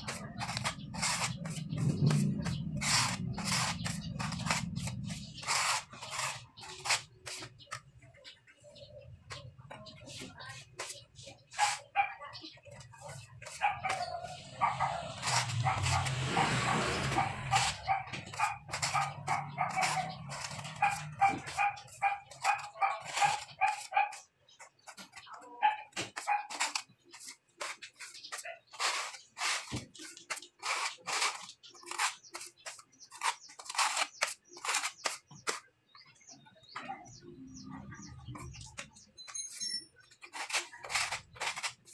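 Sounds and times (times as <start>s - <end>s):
dog barking: 11.6s - 12.3s, 13.5s - 24.3s, 25.6s - 26.6s.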